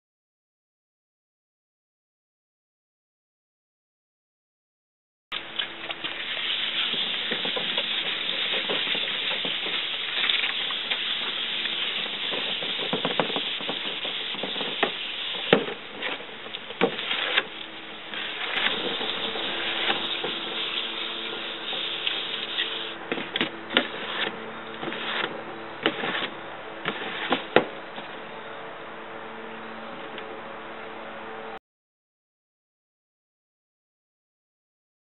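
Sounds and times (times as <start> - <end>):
sandpaper rasping on wood: 18.2 - 23.0, 23.8 - 27.6.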